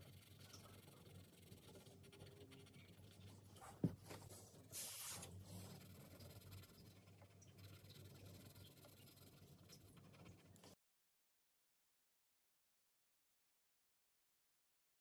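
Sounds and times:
pencil scratching on paper: 0.0s - 10.8s.

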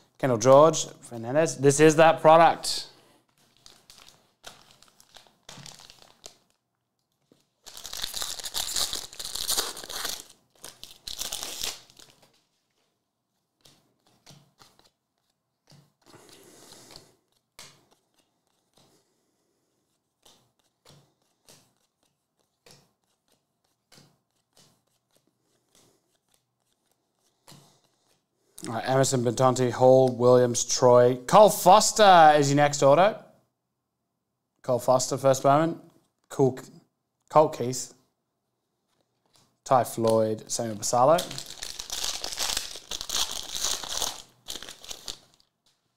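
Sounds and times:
foil wrapper tearing and crinkling: 3.4s - 6.6s, 7.6s - 12.4s, 41.2s - 45.5s.

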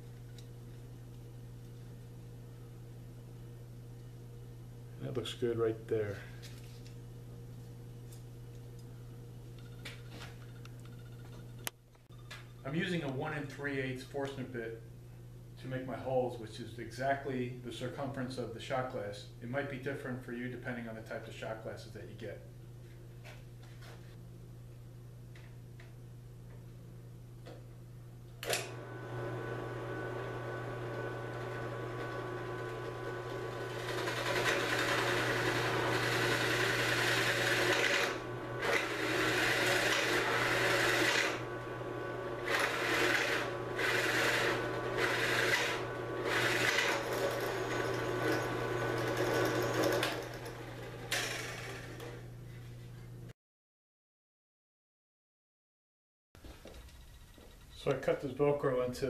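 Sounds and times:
drill press motor running: 28.4s - 52.3s
drill bit cutting wood: 29.7s - 41.5s, 42.4s - 50.6s.

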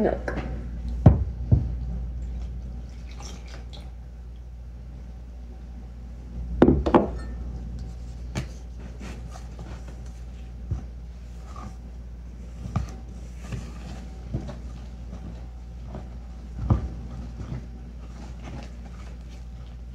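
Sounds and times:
batter stirred in plastic bowl: 12.4s - 19.9s.

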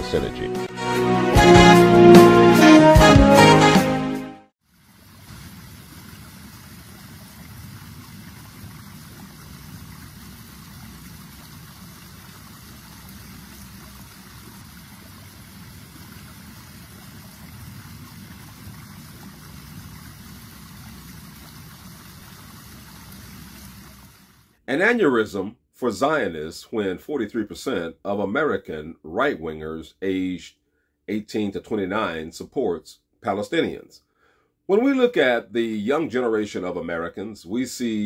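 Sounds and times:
water running over rocks: 4.6s - 24.5s.

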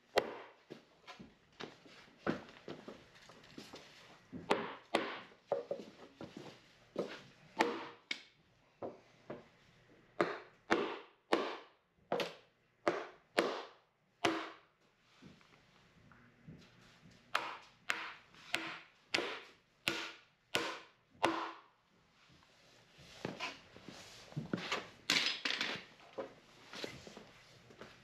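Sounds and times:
hammer driving nails into wood: 10.2s - 14.6s, 17.4s - 21.6s.

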